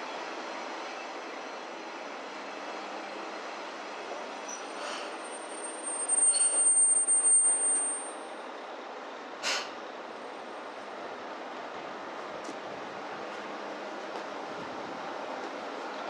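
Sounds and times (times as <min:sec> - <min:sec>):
train rumble: 0:00.0 - 0:16.0
train wheel squeal: 0:04.4 - 0:08.5
short hiss: 0:09.4 - 0:09.8.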